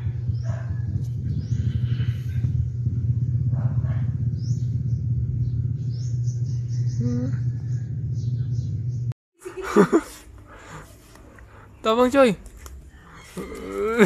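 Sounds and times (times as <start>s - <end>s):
steady low rumble: 0.0s - 9.2s
short pitched whine: 1.0s - 9.1s.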